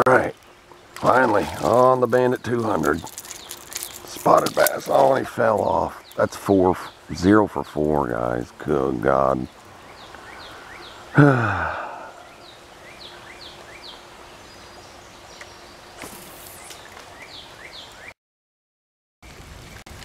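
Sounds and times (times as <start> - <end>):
faint outdoor background: 0.0 - 18.2
bird chirping: 0.2 - 18.2
man groaning: 11.2 - 12.2.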